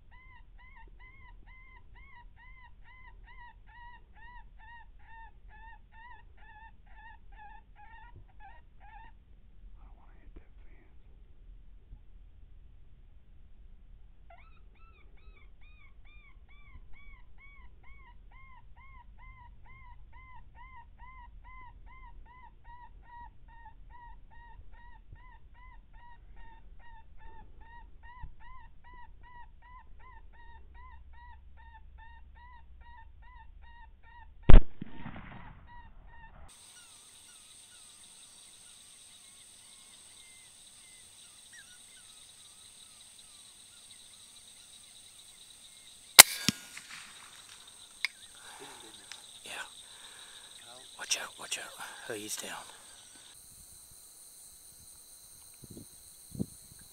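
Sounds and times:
rifle shot: 0:34.5 - 0:35.7, 0:46.2 - 0:47.6.

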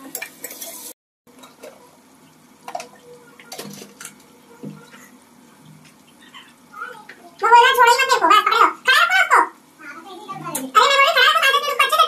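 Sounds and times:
kitchen utensils clinking: 0:00.0 - 0:01.8, 0:02.6 - 0:05.1.

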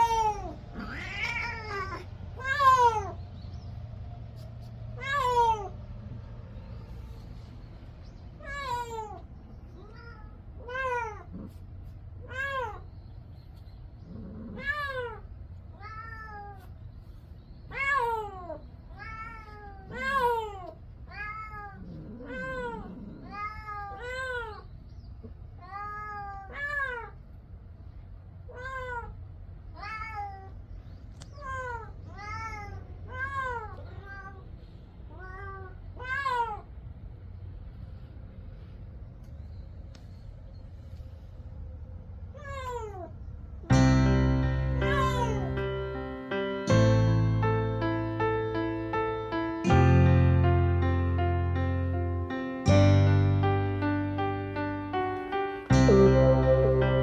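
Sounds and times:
cat meowing: 0:00.0 - 0:03.2, 0:05.0 - 0:05.8, 0:08.4 - 0:11.6, 0:12.2 - 0:12.9, 0:14.1 - 0:16.8, 0:17.7 - 0:24.7, 0:25.6 - 0:27.2, 0:28.5 - 0:30.6, 0:31.3 - 0:36.8, 0:42.3 - 0:43.2, 0:44.6 - 0:45.7, 0:55.8 - 0:57.0.

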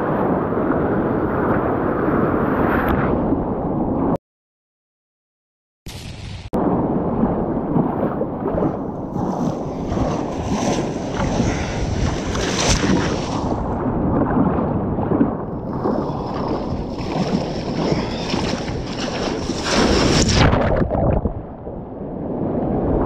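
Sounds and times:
wind rumbling on microphone: 0:00.0 - 0:04.2, 0:06.1 - 0:23.0
surf washing: 0:06.6 - 0:23.0
hissing white water: 0:15.9 - 0:20.4.

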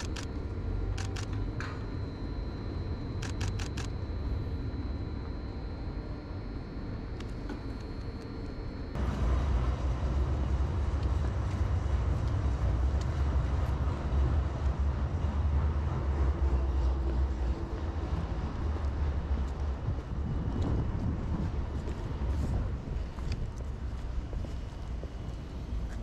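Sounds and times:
steady low rumble: 0:00.0 - 0:26.0.

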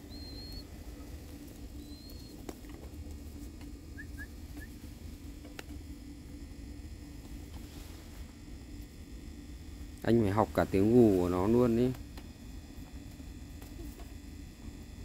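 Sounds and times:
faint bird chirps: 0:00.0 - 0:00.7, 0:01.8 - 0:02.4
low steady hum: 0:00.0 - 0:15.0.

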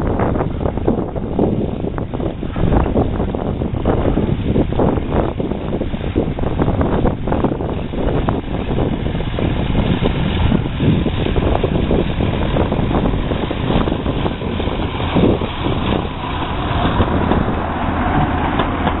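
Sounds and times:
railcar engine drone: 0:00.0 - 0:19.0
wheel and rail knocks: 0:13.8 - 0:19.0.

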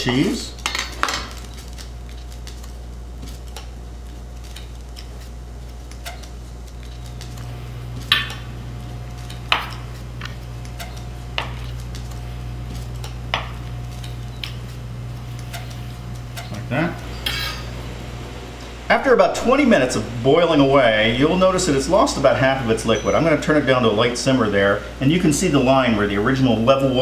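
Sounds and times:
steady low hum: 0:00.0 - 0:27.0
faint whine: 0:06.0 - 0:27.0.

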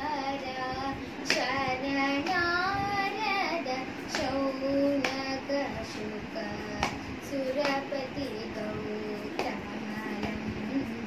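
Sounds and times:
girl singing: 0:00.0 - 0:11.0
hand clap: 0:01.2 - 0:01.5, 0:04.1 - 0:04.4, 0:05.0 - 0:05.3, 0:06.8 - 0:07.0, 0:07.6 - 0:07.9, 0:09.4 - 0:09.6.

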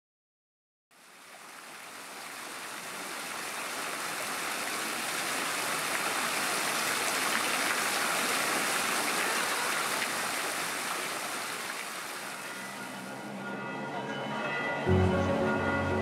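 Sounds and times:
fountain water splashing: 0:01.0 - 0:13.3.

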